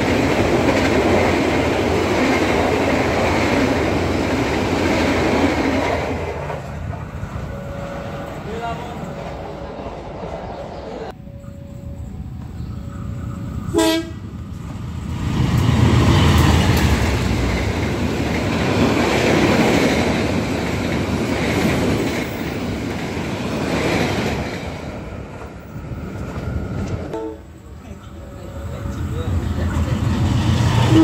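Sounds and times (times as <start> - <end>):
train wheel and rail noise: 0.0 - 31.0
train horn toot: 13.7 - 14.3, 27.1 - 27.6.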